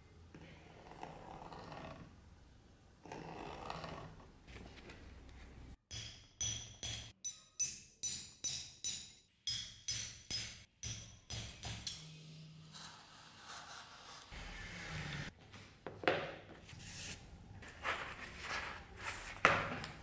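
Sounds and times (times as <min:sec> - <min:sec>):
hammer striking metal punch: 0:05.9 - 0:12.1.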